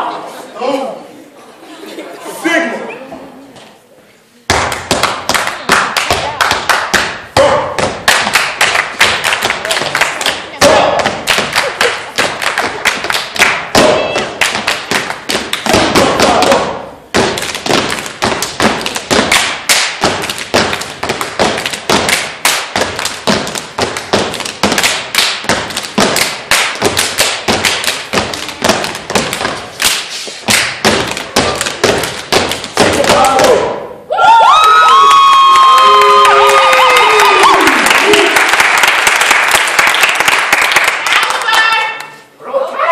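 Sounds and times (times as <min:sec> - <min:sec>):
hand claps: 0:04.5 - 0:07.2, 0:07.8 - 0:16.6, 0:17.2 - 0:33.6, 0:35.6 - 0:42.2
shoes stomping on stage: 0:12.2 - 0:33.7.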